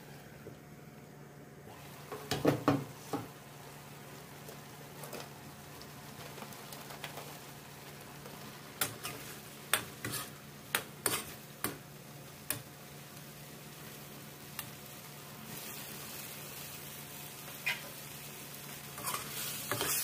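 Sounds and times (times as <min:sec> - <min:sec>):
food sizzling in a wok: 0:01.7 - 0:20.0
spatula scraping a wok: 0:08.3 - 0:11.5, 0:17.5 - 0:18.0, 0:18.8 - 0:20.0.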